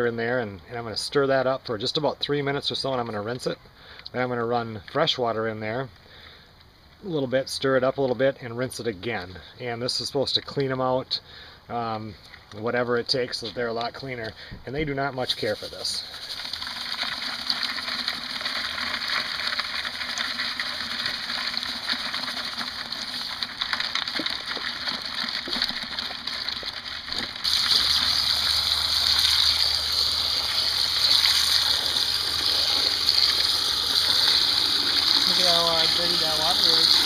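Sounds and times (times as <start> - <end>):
crayfish scratchy crackle: 15.2 - 37.0
hose water gushing into bucket: 15.2 - 37.0.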